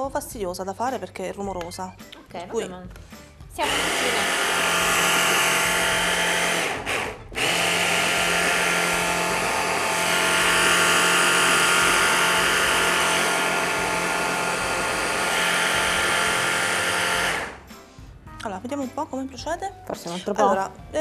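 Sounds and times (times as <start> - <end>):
hand blender motor whirring: 3.6 - 17.7.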